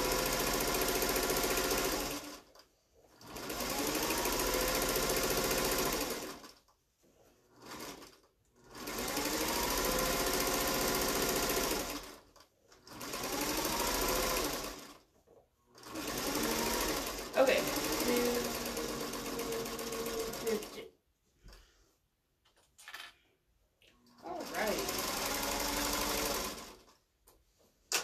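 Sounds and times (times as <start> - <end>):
electric sewing machine stitching: 0.0 - 6.7, 7.5 - 15.1, 15.7 - 20.9, 24.1 - 27.0.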